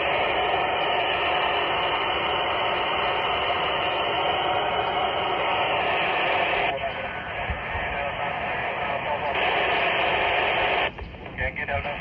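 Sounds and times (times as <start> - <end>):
radio receiver hiss: 0.0 - 12.0.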